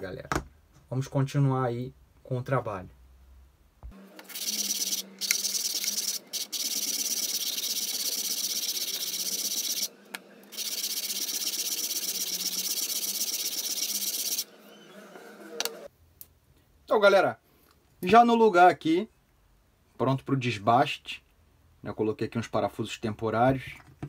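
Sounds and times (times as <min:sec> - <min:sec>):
wood rubbed on sandpaper: 0:04.3 - 0:09.9, 0:10.5 - 0:14.4.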